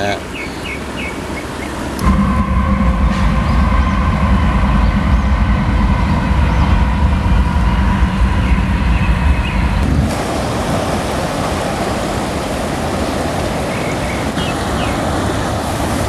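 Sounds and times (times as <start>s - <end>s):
heavy vehicle rumbling past: 2.0s - 11.6s
faint whine: 2.0s - 12.3s
river rushing: 7.2s - 16.0s.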